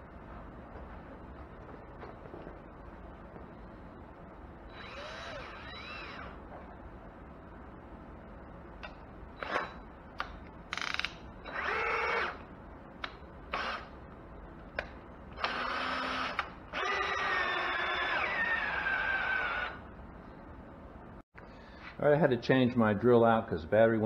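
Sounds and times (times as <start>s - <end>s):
cordless drill running: 4.7s - 6.3s, 10.8s - 12.4s, 15.4s - 19.8s.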